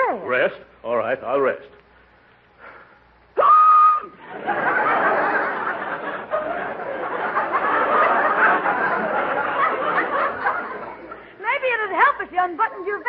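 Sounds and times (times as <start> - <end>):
audience laughing: 4.2 - 11.4.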